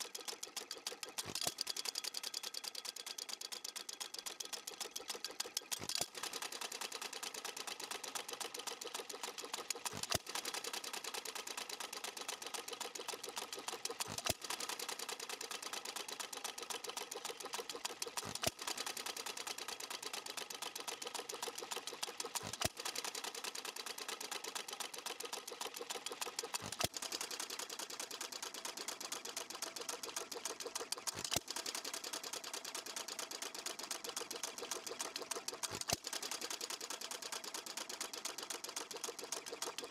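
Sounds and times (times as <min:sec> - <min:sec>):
small engine valve clicking: 0:00.0 - 0:39.9.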